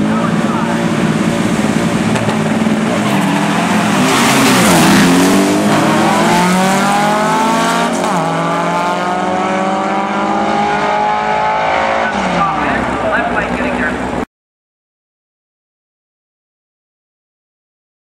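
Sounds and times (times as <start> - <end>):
car engines at full throttle: 0.0 - 14.2.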